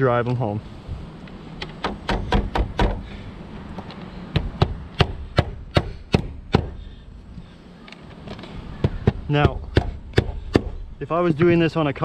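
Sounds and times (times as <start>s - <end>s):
hammer driving nails: 1.6s - 3.0s.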